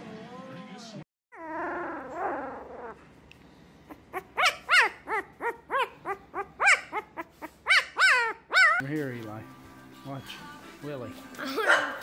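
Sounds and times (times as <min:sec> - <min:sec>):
puppy yipping: 0:03.9 - 0:08.8.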